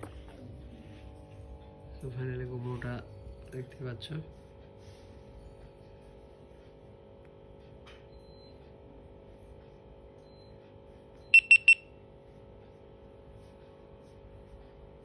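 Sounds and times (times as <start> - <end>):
high-pitched camera beeps: 11.3 - 11.8.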